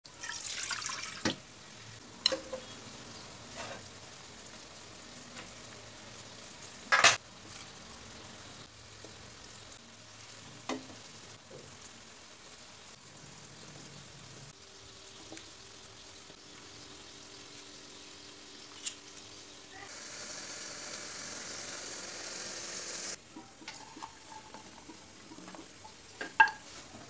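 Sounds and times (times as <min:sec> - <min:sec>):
water poured into wok: 0:00.1 - 0:01.4.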